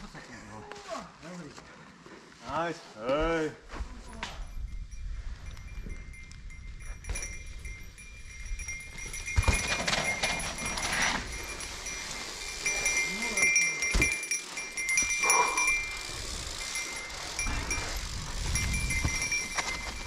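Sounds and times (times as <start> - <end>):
wind noise: 3.8 - 13.0, 14.8 - 20.0
bike tyres rumbling on trail: 5.1 - 20.0
bike knocking on bumps: 8.5 - 12.9, 15.9 - 20.0.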